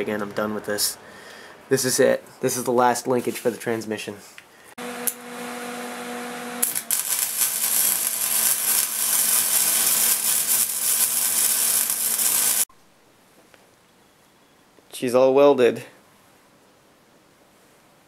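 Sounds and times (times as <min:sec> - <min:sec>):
welder arc crackling: 0:06.6 - 0:12.7.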